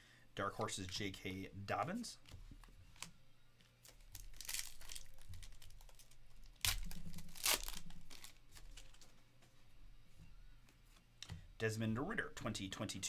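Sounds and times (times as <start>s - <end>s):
foil wrapper crinkling: 3.8s - 9.1s
foil ripping: 4.1s - 8.4s.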